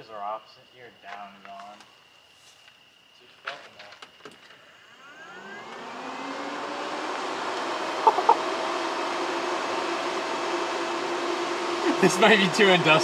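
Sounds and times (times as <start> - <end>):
electric fan whirring: 4.7 - 13.0.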